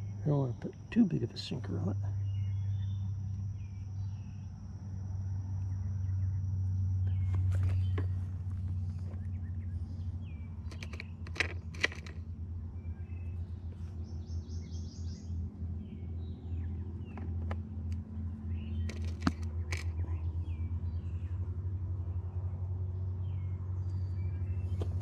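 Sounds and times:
birds chirping: 0.0s - 4.9s, 5.5s - 25.0s
steady low hum: 0.0s - 25.0s
small items rattling in plastic box: 10.7s - 12.2s, 18.9s - 19.9s.

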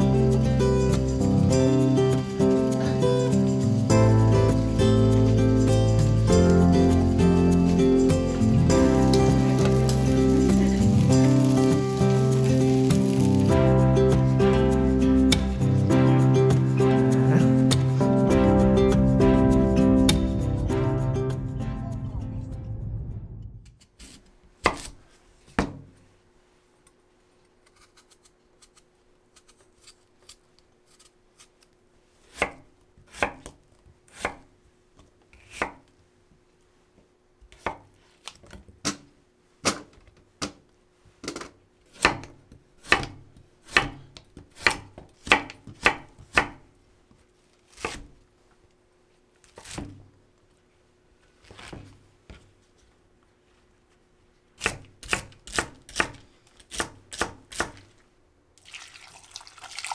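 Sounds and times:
knife chopping on wooden board: 32.4s - 34.4s, 42.0s - 46.6s, 54.6s - 57.9s.

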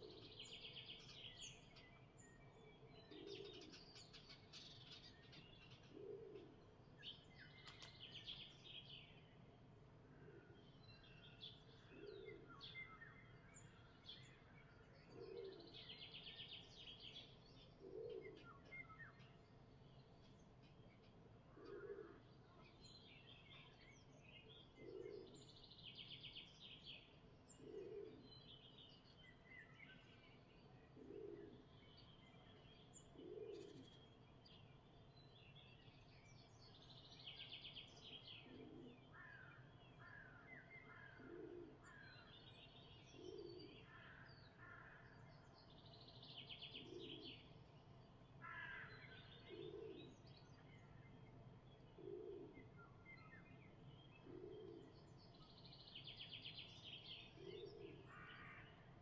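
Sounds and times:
dove cooing: 0.0s - 0.4s, 3.1s - 3.8s, 5.9s - 6.6s, 11.9s - 12.5s, 15.1s - 15.7s, 17.8s - 18.6s, 21.5s - 22.2s, 24.8s - 25.4s, 27.6s - 28.2s, 31.0s - 31.7s, 33.2s - 33.8s, 38.4s - 39.0s, 41.0s - 41.9s, 43.1s - 43.8s, 46.7s - 47.3s, 49.4s - 50.1s, 52.0s - 52.8s, 54.2s - 55.0s, 57.3s - 58.1s
songbirds chirping: 0.0s - 59.0s.

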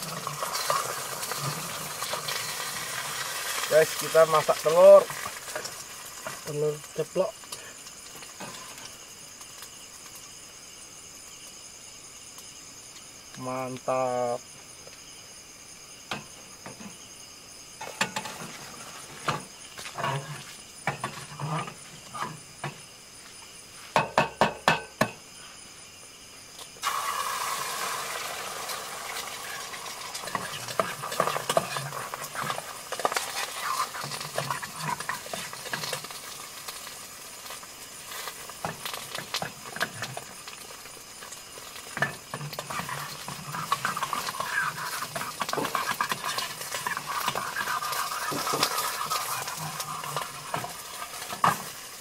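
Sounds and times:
egg sizzling in oil: 0.0s - 13.3s, 26.6s - 52.0s
metal spatula scraping pan: 19.9s - 22.4s, 30.2s - 36.1s, 42.0s - 51.8s
taps on metal pot: 24.0s - 25.2s.

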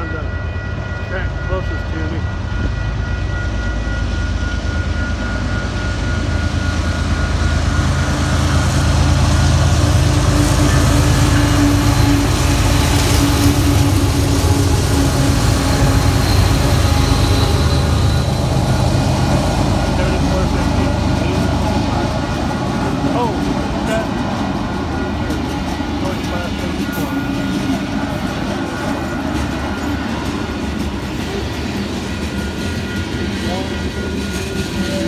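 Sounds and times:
locomotives passing: 6.8s - 35.0s.

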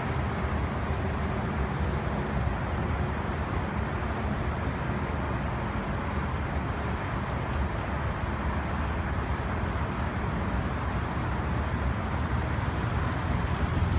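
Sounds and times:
distant motorcycle rumble: 11.4s - 13.9s.

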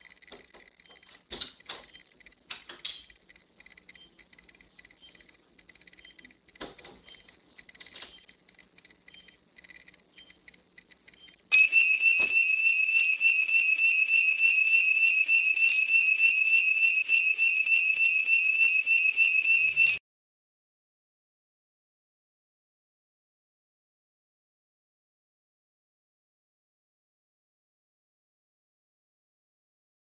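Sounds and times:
faint ticking: 0.0s - 11.6s
high-pitched warbling whistle: 11.5s - 20.0s.

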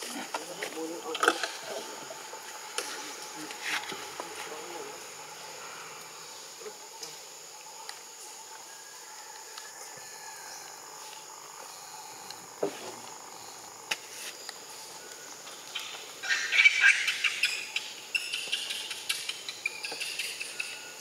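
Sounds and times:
steady faint hiss: 0.0s - 21.0s
high scratchy animal calls: 15.7s - 21.0s.

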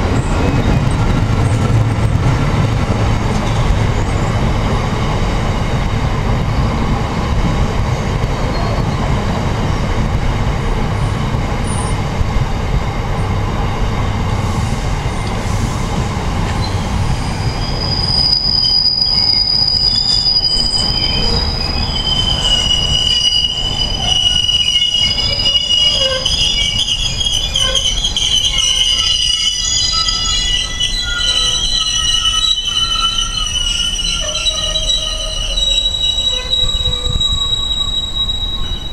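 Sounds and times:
freight train rumbling: 0.0s - 38.9s
high-pitched wheel squeal: 16.6s - 38.9s.

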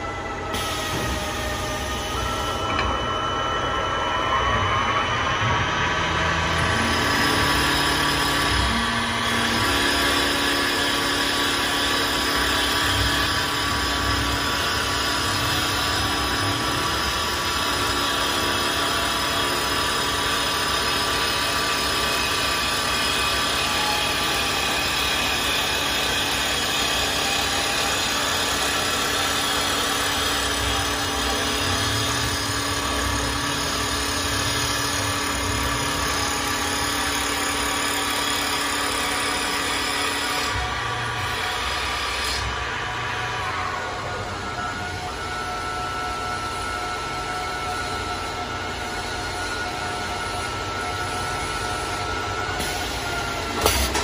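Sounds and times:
low machine hum: 0.0s - 25.5s
wood lathe whine: 0.0s - 54.0s.

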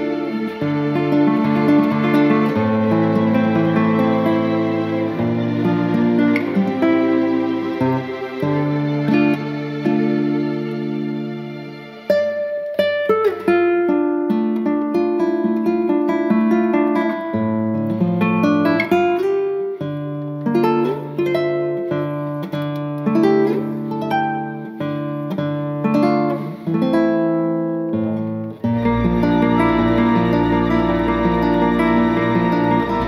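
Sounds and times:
acoustic guitar playing: 0.0s - 33.0s.

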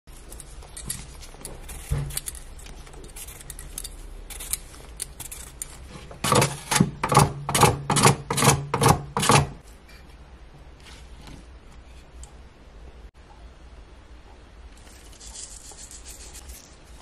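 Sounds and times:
potato rasping on grater: 15.1s - 17.0s.

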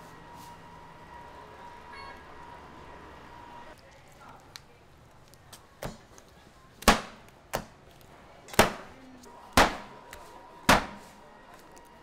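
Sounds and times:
loud sharp knocks: 9.6s - 9.9s, 10.7s - 11.0s.

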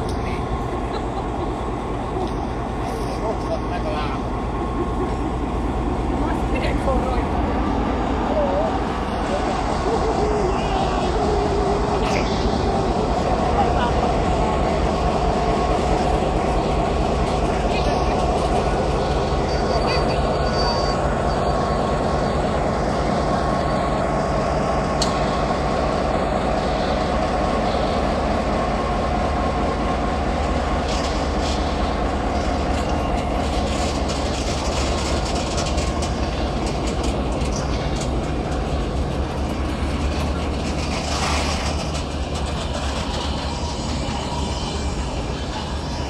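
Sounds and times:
diesel locomotive engine running: 0.0s - 46.0s
train wheels clicking over rail joints: 21.0s - 27.6s, 28.2s - 46.0s.

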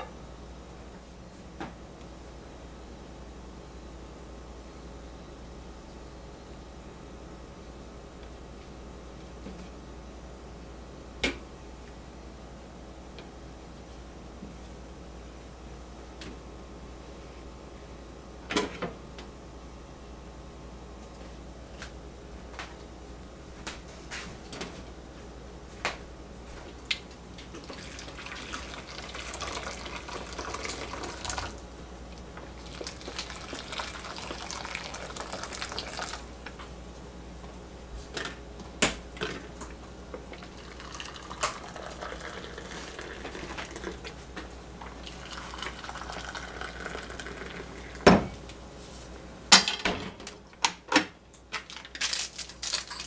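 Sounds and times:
water pouring from kettle: 27.6s - 31.6s, 32.6s - 36.2s, 40.4s - 44.0s, 45.0s - 48.0s.

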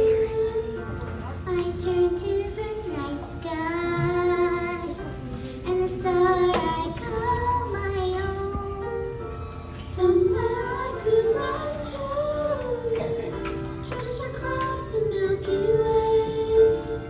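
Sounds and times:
child singing into microphone: 0.0s - 17.0s
musical accompaniment: 0.0s - 17.0s.

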